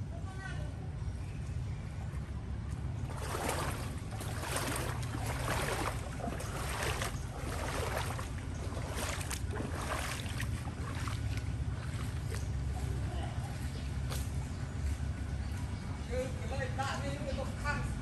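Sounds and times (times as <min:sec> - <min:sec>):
steady low rumble: 0:00.0 - 0:18.0
water splashing and sloshing: 0:01.8 - 0:14.4.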